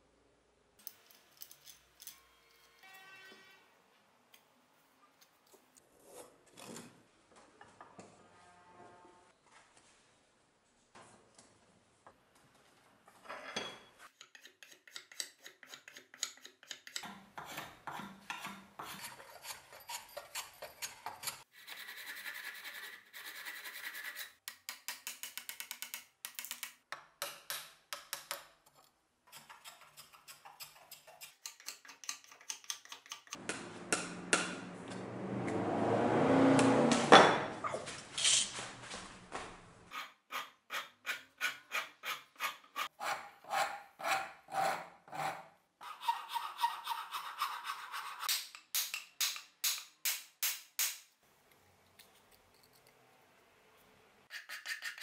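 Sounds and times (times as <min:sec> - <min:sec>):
file rasping wood: 0:14.2 - 0:24.4, 0:39.9 - 0:48.3, 0:54.3 - 0:55.0.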